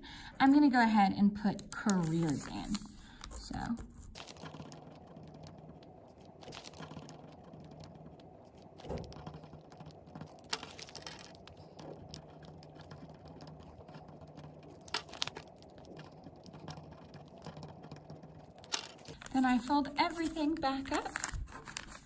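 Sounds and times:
pens clicking and tapping on table: 1.5 - 19.3
paper rustling: 1.8 - 4.8, 6.2 - 7.3, 10.3 - 11.9, 18.6 - 22.0
pen scratching on paper: 2.0 - 18.4.

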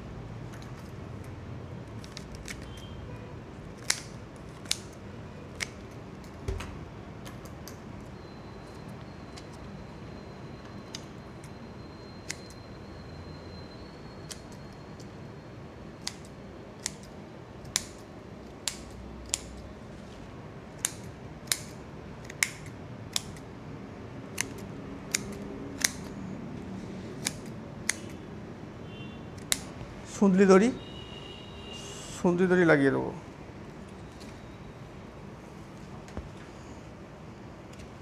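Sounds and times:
scissors snipping stems: 24.3 - 26.1, 27.2 - 28.2.

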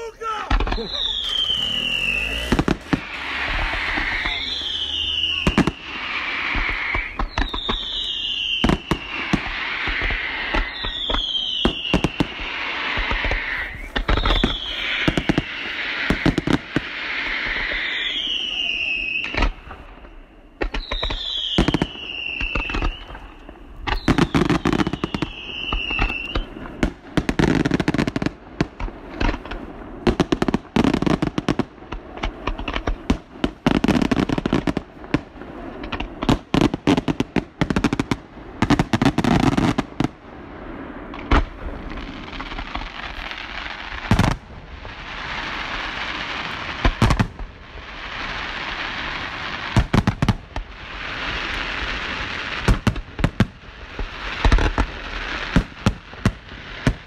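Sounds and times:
loud firework bangs: 0.0 - 57.0
firework shell bursts and crackling: 0.1 - 18.4, 19.1 - 40.3
falling firework whistles: 0.4 - 28.4.

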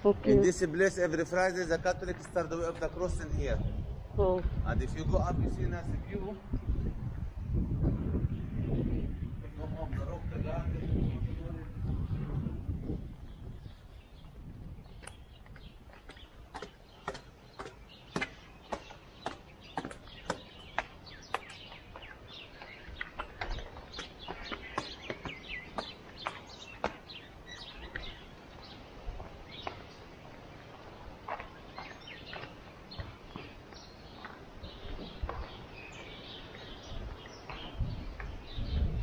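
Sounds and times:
small birds chirping: 0.0 - 39.0
footsteps on stone: 1.3 - 3.2, 13.7 - 38.7.

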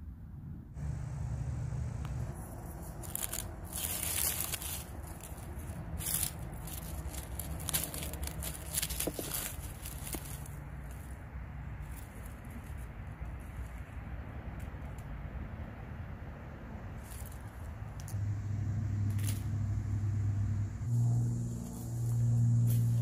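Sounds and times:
rustling and crackling of undergrowth: 0.8 - 16.0, 16.7 - 23.0
low microphone rumble: 18.1 - 23.0.

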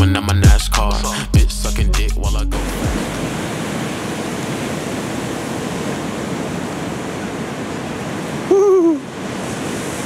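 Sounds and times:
ocean surf rushing: 2.5 - 10.0
person hooting shout: 8.5 - 9.1.

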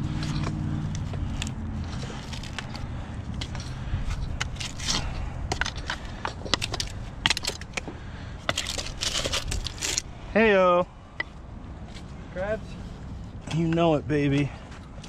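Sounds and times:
shells scraping against rock: 0.1 - 10.1.

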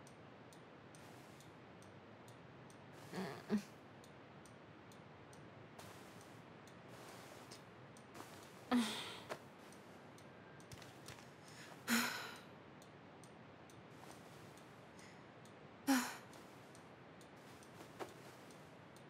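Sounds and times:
woman sighing: 3.1 - 3.7, 8.7 - 9.3, 11.9 - 12.4.

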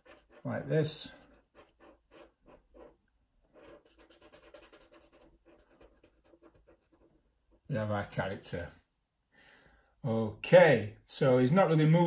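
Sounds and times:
marker scratching on paper: 0.0 - 7.2.

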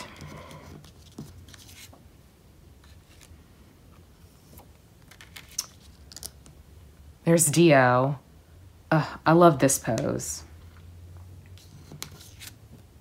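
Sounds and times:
cards tapping and scraping on paper: 0.1 - 2.0, 11.6 - 12.8.

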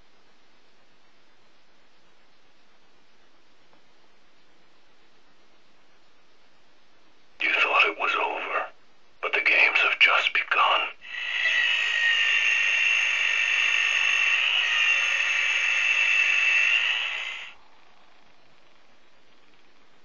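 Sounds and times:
toy saw blade whirring: 11.1 - 17.6.

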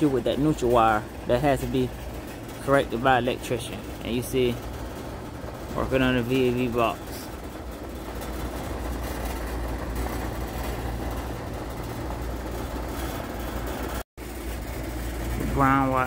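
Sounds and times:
hvac equipment humming: 0.0 - 16.0.

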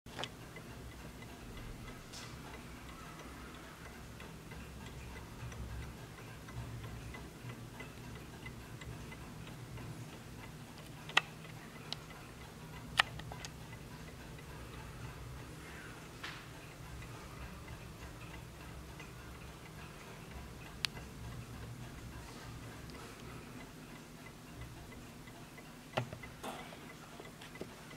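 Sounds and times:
mantel clock ticking: 0.1 - 27.9.

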